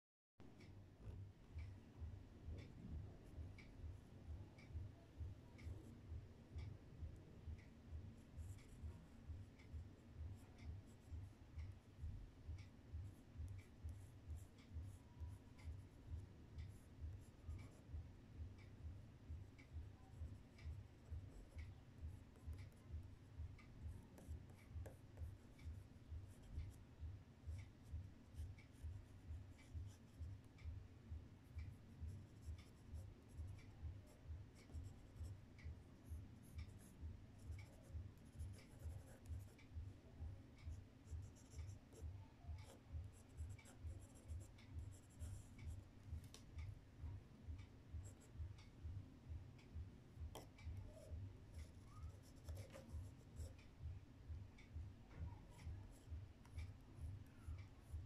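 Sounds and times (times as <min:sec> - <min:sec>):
pencil scratching on paper: 0:24.2 - 0:26.7, 0:32.1 - 0:35.3, 0:36.0 - 0:39.6, 0:41.2 - 0:42.0, 0:42.6 - 0:45.7, 0:50.3 - 0:53.6.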